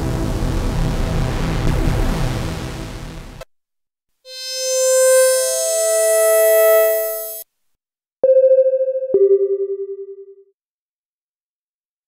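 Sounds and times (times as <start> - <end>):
busy synthesizer patch: 0.0 - 3.4, 4.3 - 7.4
synthesizer held chord: 0.0 - 3.4
pulsing synthesizer tone: 4.3 - 7.4.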